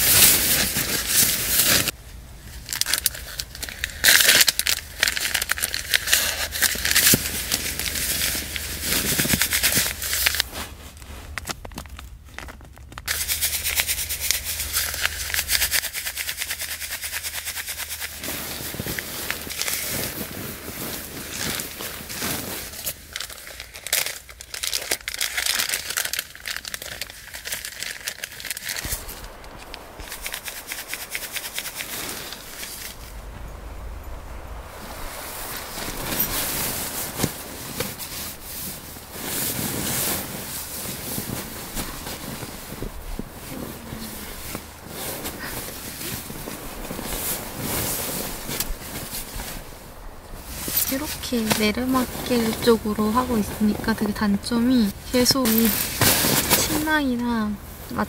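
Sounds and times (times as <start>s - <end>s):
sleeping bag rustling: 0.0s - 58.0s
hand-warmer packet rattling: 2.6s - 10.5s, 11.3s - 32.9s, 55.1s - 57.0s.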